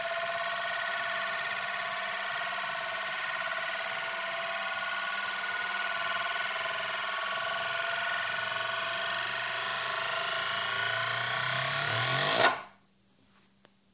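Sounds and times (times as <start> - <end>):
spinning metal disk whirring: 0.0 - 12.6.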